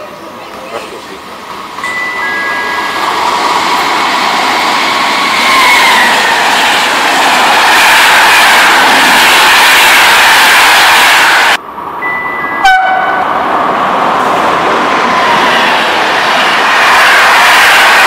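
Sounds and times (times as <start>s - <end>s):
train passing at speed: 0.0s - 18.0s.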